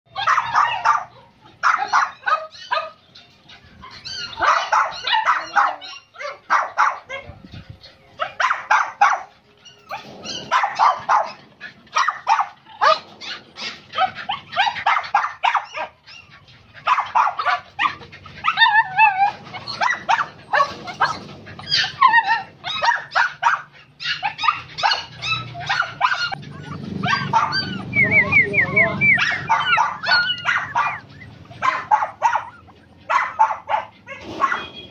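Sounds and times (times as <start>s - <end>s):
dog yelping: 0.1s - 34.9s
dogs barking: 0.1s - 34.9s.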